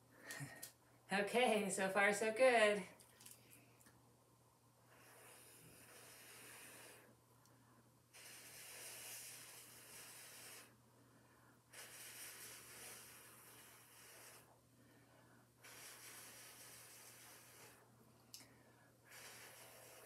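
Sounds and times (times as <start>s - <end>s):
person blowing hissing breaths: 4.9s - 7.1s, 8.1s - 10.8s, 11.6s - 17.9s, 19.0s - 20.0s.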